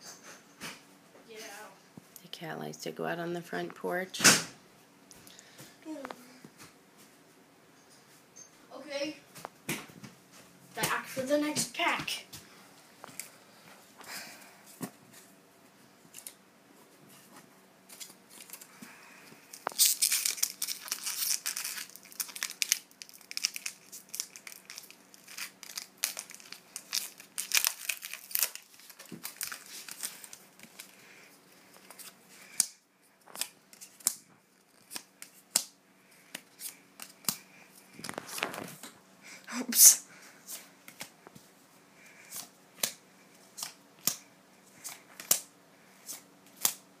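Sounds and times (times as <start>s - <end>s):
foil wrapper tearing and crinkling: 19.5s - 31.0s
cards being handled clicks: 43.6s - 45.5s, 46.1s - 46.8s.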